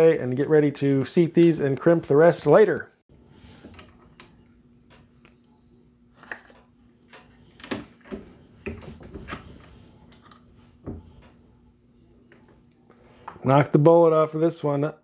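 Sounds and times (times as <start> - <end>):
faint steady hum: 3.1 - 14.4.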